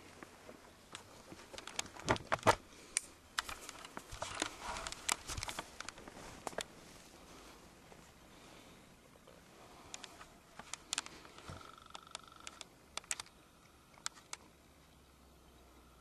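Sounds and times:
camcorder handling noise: 0:03.4 - 0:06.7, 0:09.9 - 0:13.3.

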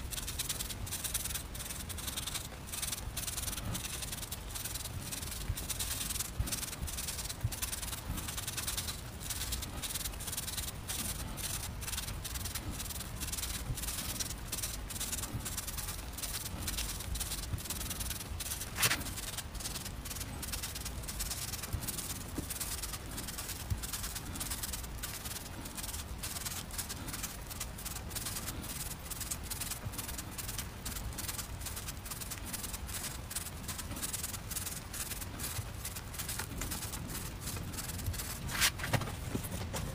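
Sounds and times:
cleaver cutting radish on board: 0:18.7 - 0:19.1.

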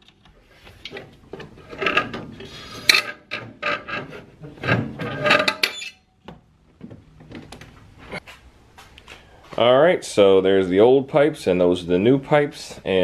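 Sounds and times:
metal pipe scraping and knocking: 0:00.7 - 0:06.2.

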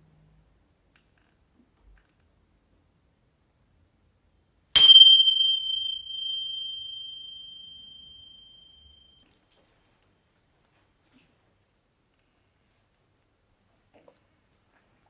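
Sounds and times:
small metal chime ringing: 0:04.8 - 0:09.2.

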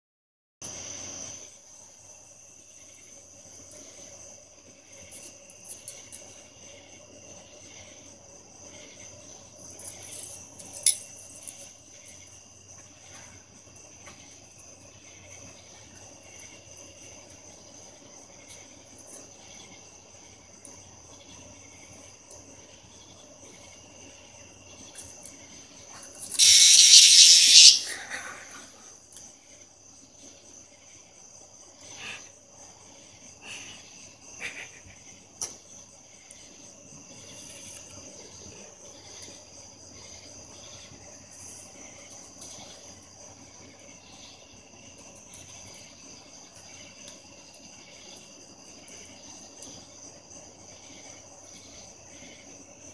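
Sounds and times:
high insect trill: 0:00.6 - 0:52.9
cicada harsh buzzing: 0:26.2 - 0:28.2.

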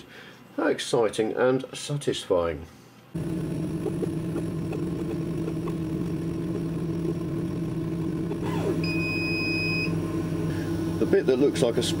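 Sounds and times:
laser cutter humming: 0:03.2 - 0:12.0.

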